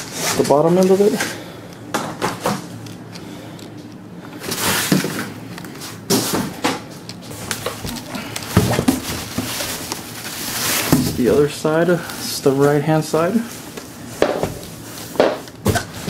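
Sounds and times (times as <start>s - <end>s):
cardboard scraping and rustling: 4.4s - 6.6s, 7.2s - 11.5s
cardboard box knocks and thumps: 8.5s - 9.8s.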